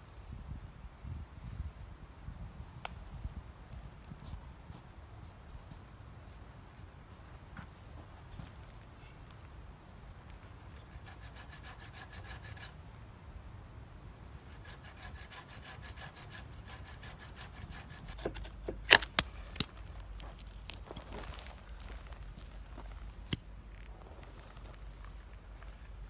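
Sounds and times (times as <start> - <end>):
hand saw cutting branch: 10.7 - 12.8, 14.4 - 19.7.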